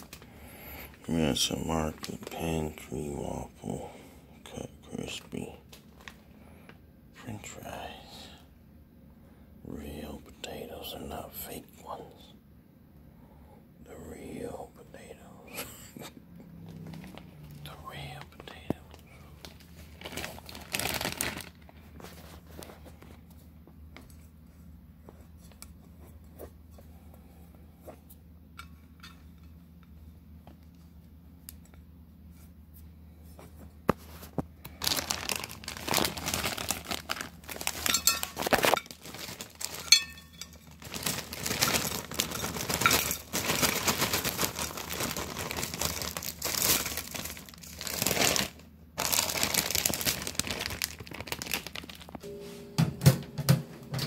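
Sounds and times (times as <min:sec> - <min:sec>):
plastic bag crinkling: 0:00.0 - 0:03.8, 0:04.9 - 0:06.3, 0:16.6 - 0:23.2, 0:34.1 - 0:52.2.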